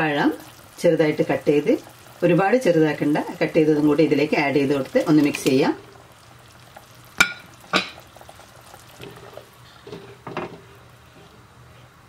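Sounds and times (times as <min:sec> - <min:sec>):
bowl clinking on pot: 0:07.2 - 0:08.0.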